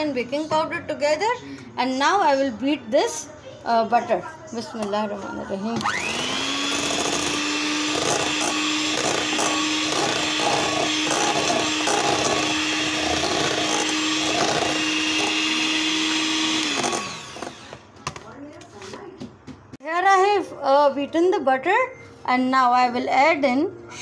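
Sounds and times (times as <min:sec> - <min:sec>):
electric hand mixer beating butter: 0:05.8 - 0:17.9.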